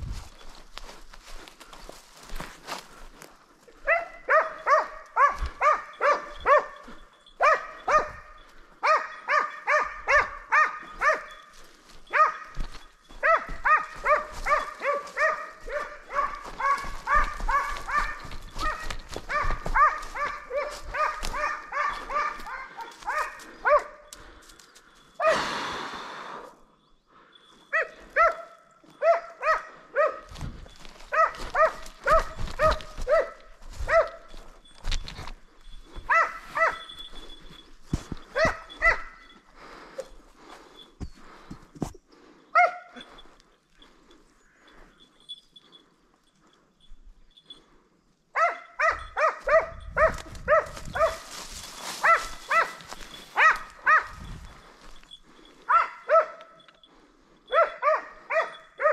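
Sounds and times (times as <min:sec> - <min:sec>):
hound baying: 0:03.7 - 0:24.4, 0:27.7 - 0:34.7, 0:35.6 - 0:40.1, 0:42.5 - 0:43.9, 0:48.4 - 0:58.9.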